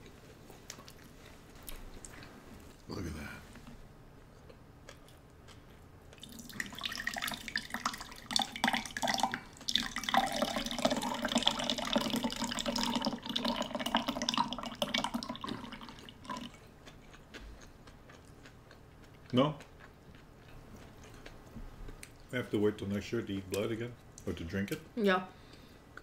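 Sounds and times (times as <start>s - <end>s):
drink pouring into glass: 6.2s - 16.5s.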